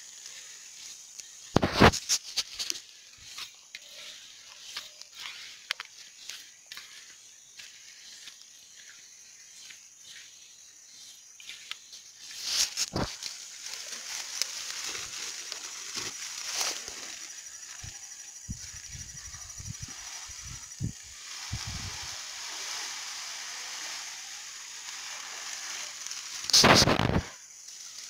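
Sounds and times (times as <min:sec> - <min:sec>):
steady high hiss: 0:00.0 - 0:28.0
small clicks and rustles: 0:00.2 - 0:07.0
plastic bag rustling: 0:12.4 - 0:27.3.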